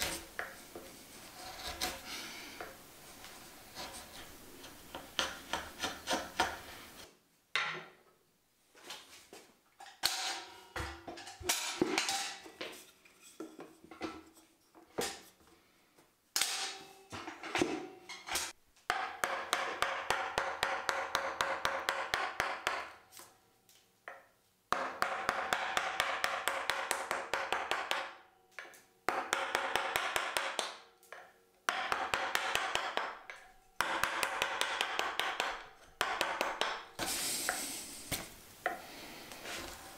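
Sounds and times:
mallet striking chisel into wood: 18.9 - 23.0, 24.7 - 37.0.

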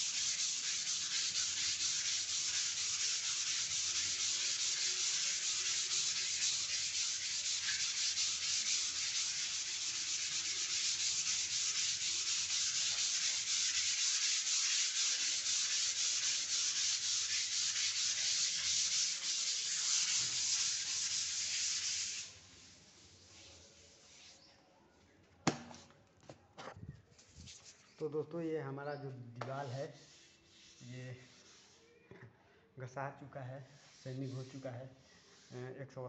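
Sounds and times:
sandpaper rubbing on wall: 0.0 - 24.5, 29.9 - 31.9, 33.8 - 35.7.

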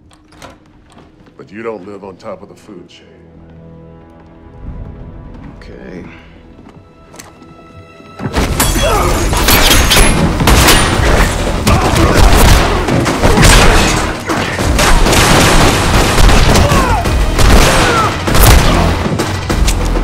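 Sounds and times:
punches and body blows: 8.2 - 19.6.

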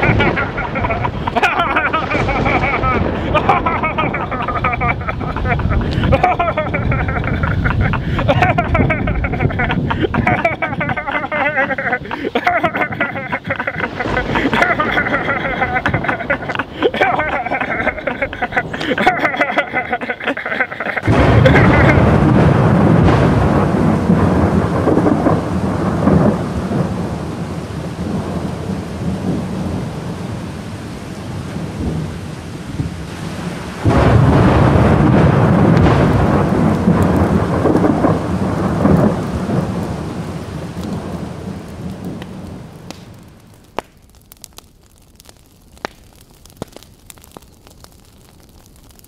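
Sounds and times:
sharp crackles: 0.0 - 27.0, 33.0 - 49.0
deep rumbling roar: 21.0 - 26.5.

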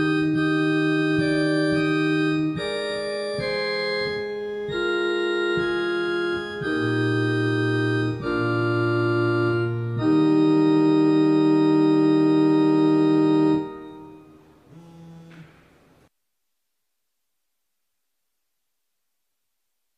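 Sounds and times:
organ playing chords: 0.0 - 15.3.

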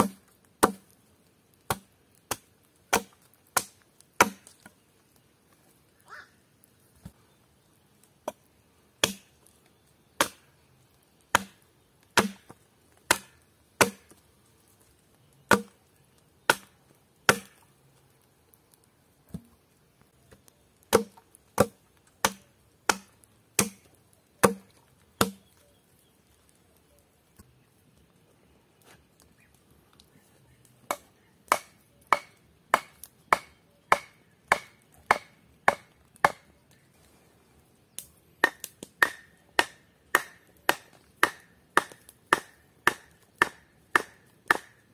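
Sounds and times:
hatchet chopping wood: 0.0 - 1.0, 1.7 - 4.7, 9.0 - 9.3, 10.2 - 10.5, 11.3 - 14.2, 15.5 - 15.8, 16.5 - 17.6, 20.9 - 25.5, 30.9 - 36.5, 38.4 - 44.9
stake pounded into ground: 24.4 - 25.5.

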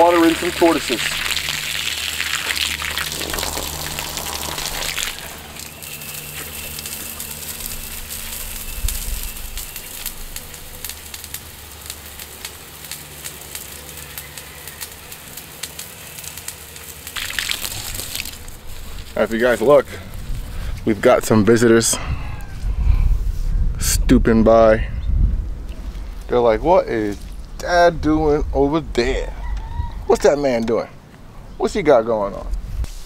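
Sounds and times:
water pouring into metal tank: 0.0 - 10.1, 17.2 - 18.6.

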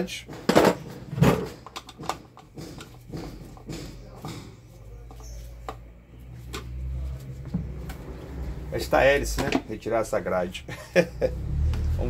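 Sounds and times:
fan grille clicks and knocks: 0.0 - 4.7.

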